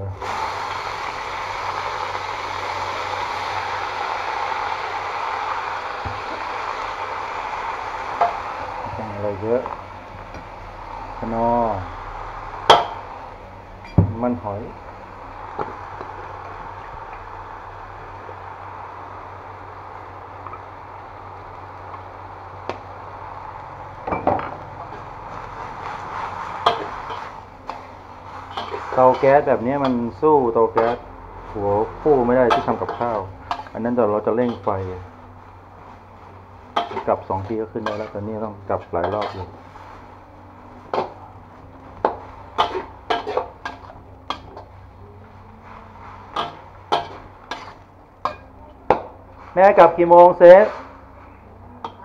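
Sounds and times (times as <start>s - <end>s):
frying sizzle: 0.0s - 52.0s
metal spatula scraping a wok: 24.8s - 52.0s
metal spatula clanking on wok: 28.5s - 30.1s, 30.8s - 31.1s, 32.5s - 33.8s, 36.8s - 37.1s, 37.8s - 38.2s, 39.0s - 39.6s, 42.0s - 44.7s, 46.3s - 49.1s.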